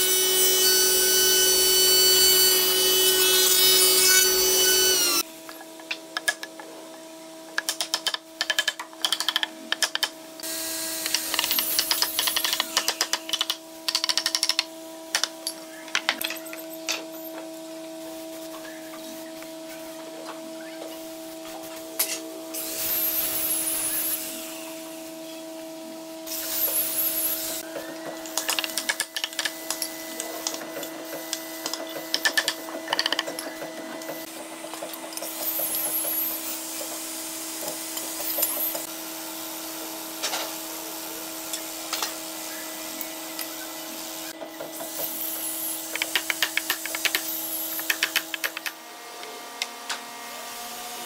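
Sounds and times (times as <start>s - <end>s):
rapid irregular taps and clicks: 7.6s - 10.1s, 45.9s - 48.7s.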